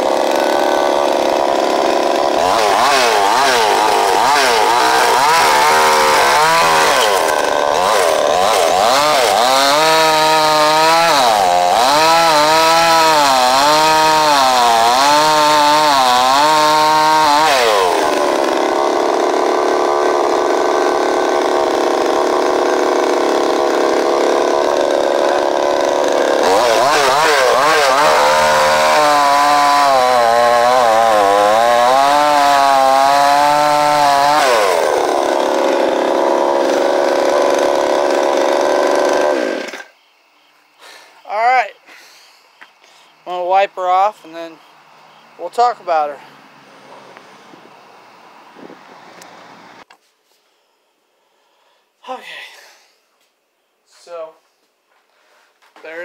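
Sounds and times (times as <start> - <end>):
chainsaw revving: 0.0 - 39.9.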